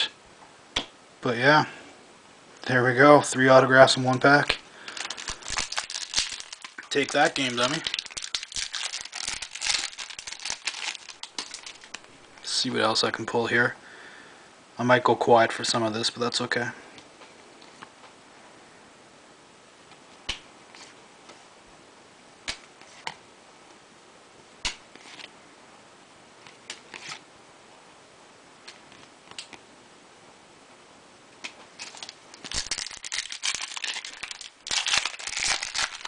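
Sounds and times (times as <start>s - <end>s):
pack wrapper crinkling: 4.4s - 12.4s, 31.8s - 36.0s
cards flicking and snapping: 20.2s - 20.9s, 22.4s - 23.2s, 24.6s - 25.3s.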